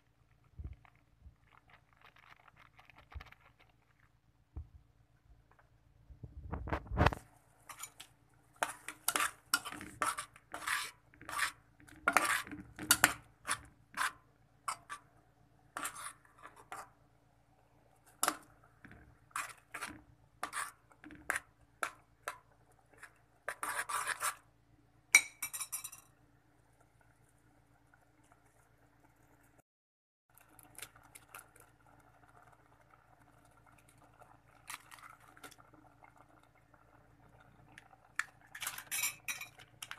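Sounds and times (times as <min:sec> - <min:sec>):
utensil scraping metal pot: 0:06.6 - 0:17.0, 0:18.0 - 0:24.5, 0:38.2 - 0:39.6.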